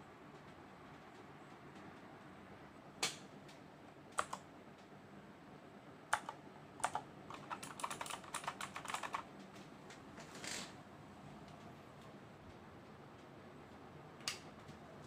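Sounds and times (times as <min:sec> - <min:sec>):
clicky keyboard typing: 0:04.1 - 0:04.5, 0:06.1 - 0:09.3.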